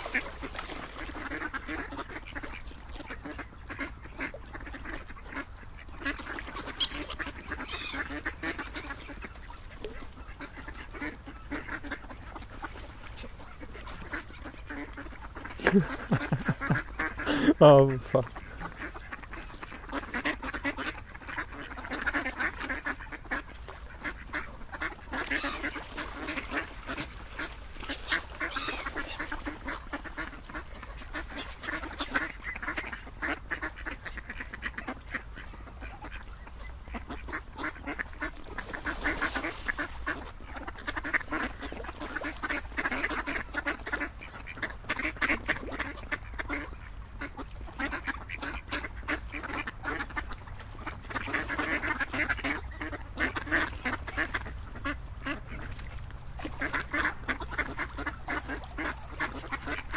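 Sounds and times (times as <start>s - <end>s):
ducks quacking: 0.0s - 59.9s.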